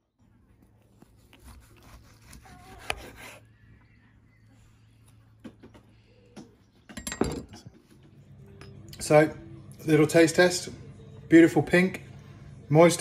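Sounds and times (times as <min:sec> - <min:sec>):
knife sawing through meat: 0:01.2 - 0:03.5.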